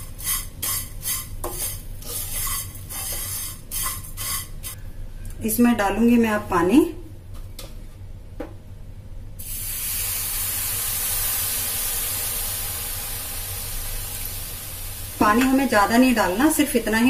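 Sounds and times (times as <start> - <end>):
water hissing in hot pan: 9.4 - 17.0.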